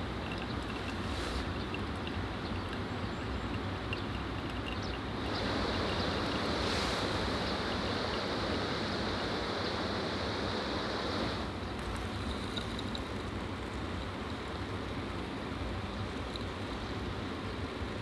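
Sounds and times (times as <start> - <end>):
faint crackling ticks: 0.0 - 6.9, 11.8 - 14.5
hot water pouring onto coffee: 0.0 - 9.0, 11.4 - 15.4
steady rushing noise: 4.6 - 11.5.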